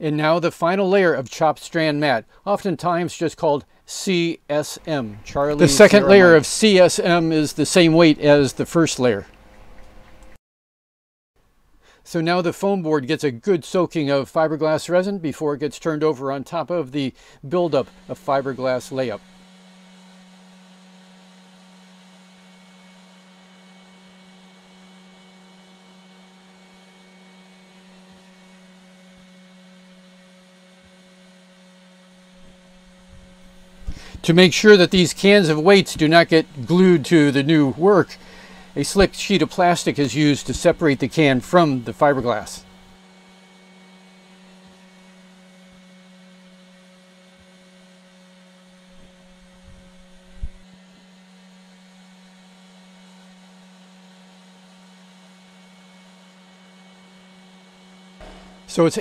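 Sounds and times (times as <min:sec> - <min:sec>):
low electrical hum: 0:00.0 - 0:10.4, 0:11.4 - 0:59.0
low electrical hum with hiss: 0:00.0 - 0:10.4, 0:32.3 - 0:43.0.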